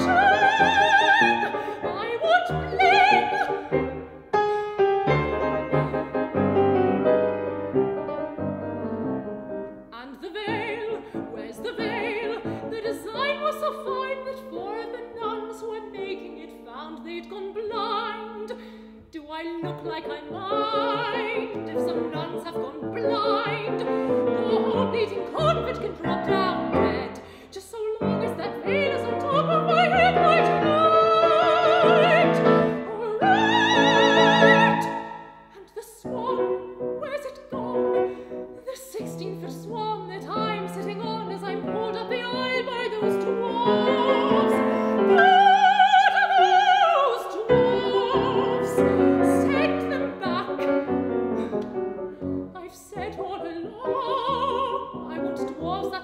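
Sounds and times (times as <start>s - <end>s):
soprano singing opera: 0.0s - 6.1s, 9.9s - 56.0s
grand piano: 0.0s - 56.0s.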